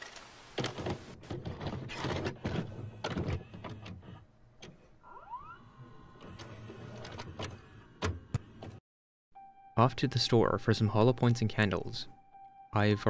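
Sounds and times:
rising whine of tape: 0:05.0 - 0:06.9.

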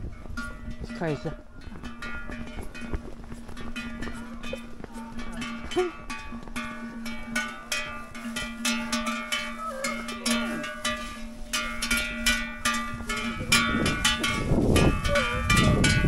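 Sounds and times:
bell-like strikes ringing: 0:03.6 - 0:16.0.

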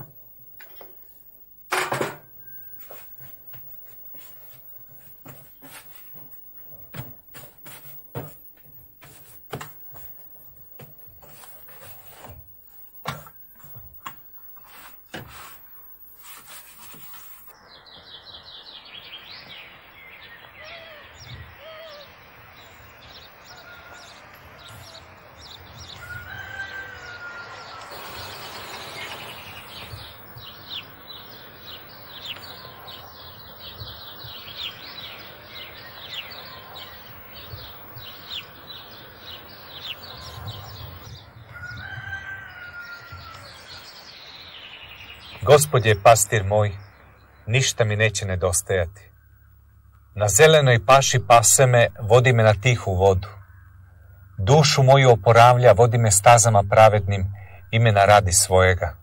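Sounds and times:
birds chirping: 0:00.0 - 0:59.0
steady background noise: 0:00.0 - 0:59.0
poultry calls: 0:17.7 - 0:47.5, 0:51.1 - 0:58.7.

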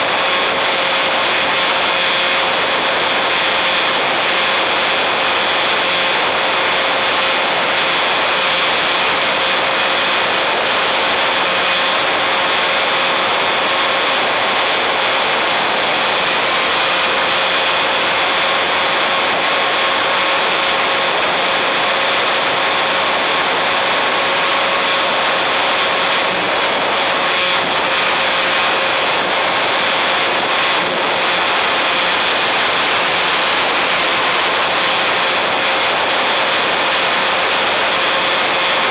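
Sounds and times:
motor and propeller whine: 0:00.0 - 0:38.9.

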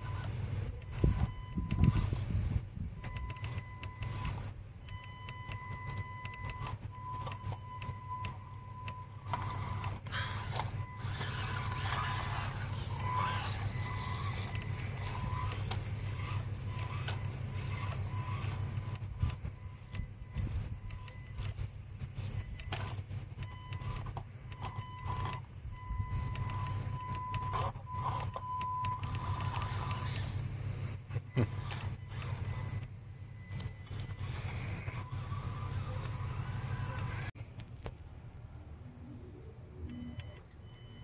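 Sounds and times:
toy car motor whining: 0:00.0 - 0:02.3, 0:03.2 - 0:04.5, 0:05.5 - 0:19.5, 0:22.2 - 0:25.5, 0:26.2 - 0:30.6, 0:31.3 - 0:32.9, 0:33.5 - 0:37.4.

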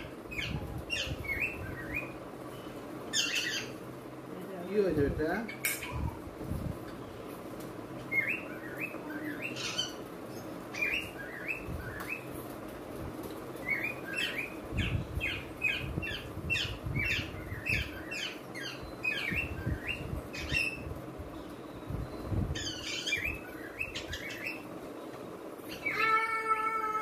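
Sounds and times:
bird chirping: 0:00.3 - 0:03.8, 0:08.1 - 0:12.3, 0:13.6 - 0:26.2.

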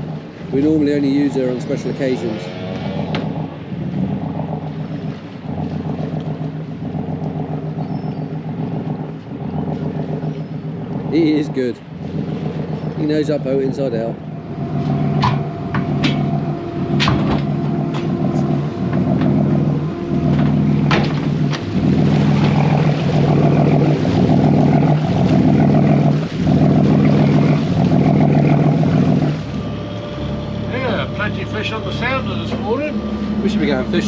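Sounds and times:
boat engine running: 0:00.0 - 0:34.0
water rushing past hull: 0:00.0 - 0:34.0
sharp knocks or splashes: 0:20.2 - 0:29.5.

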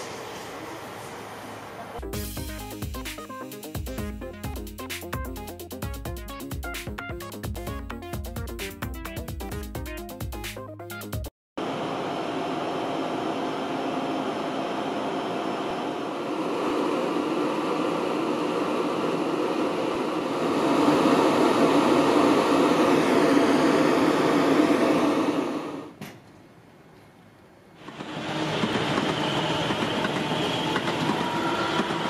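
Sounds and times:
electric train equipment humming: 0:11.6 - 0:26.0, 0:27.8 - 0:32.0.

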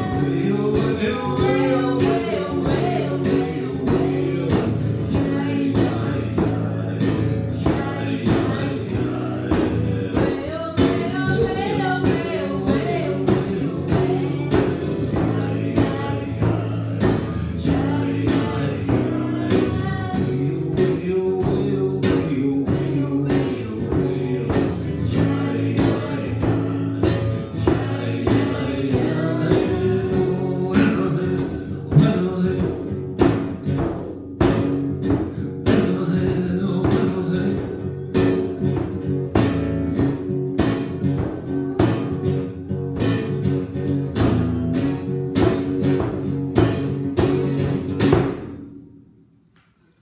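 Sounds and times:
person singing: 0:00.0 - 0:32.9
frame drum beat: 0:00.0 - 0:48.7
acoustic guitar strumming: 0:00.0 - 0:49.9.

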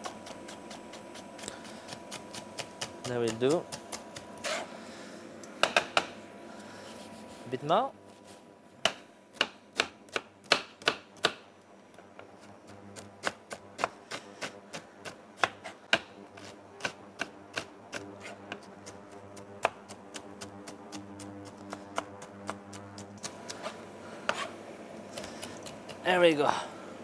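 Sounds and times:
knife chopping on cutting board: 0:15.4 - 0:16.1, 0:23.4 - 0:24.5.

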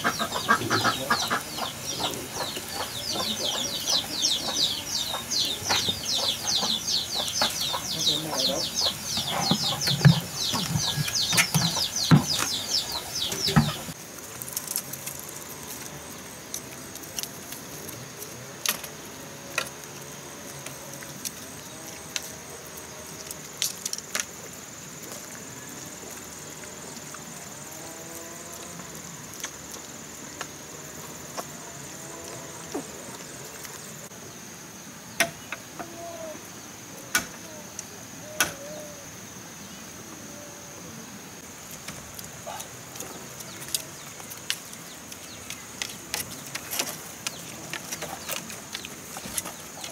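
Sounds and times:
animal or bird calls: 0:00.0 - 0:14.0, 0:35.4 - 0:39.1
insect drone: 0:00.0 - 0:49.9.

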